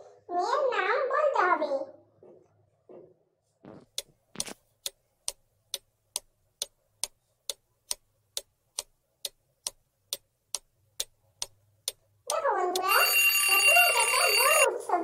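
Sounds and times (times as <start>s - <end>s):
clock ticking: 3.8s - 14.7s.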